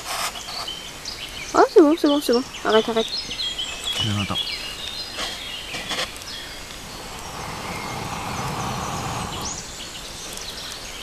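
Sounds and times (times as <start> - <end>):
bird chirping faintly: 0.2 - 11.0
person blowing onto fire embers: 5.1 - 10.5.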